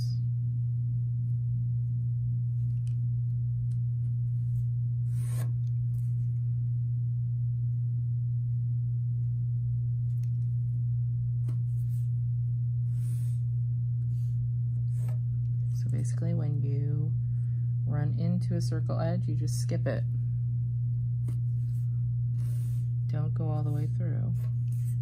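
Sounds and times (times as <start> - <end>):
low hum: 0.0 - 25.0
pencil scratching on paper: 5.1 - 5.5, 14.9 - 15.2, 22.4 - 22.9, 23.8 - 25.0.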